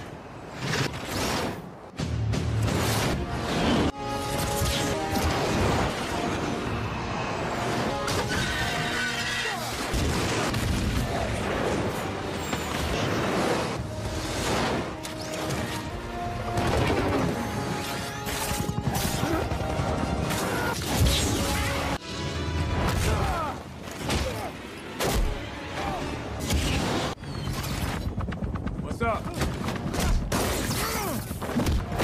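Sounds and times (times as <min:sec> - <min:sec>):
dramatic orchestral music: 0:02.0 - 0:27.0.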